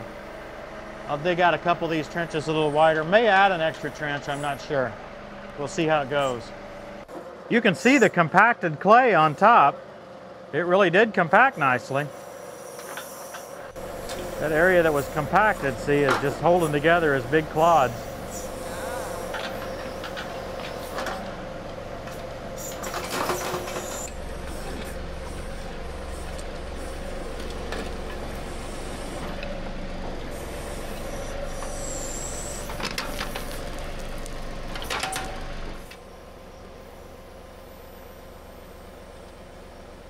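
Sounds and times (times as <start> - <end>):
tractor diesel engine running: 0.0 - 40.0.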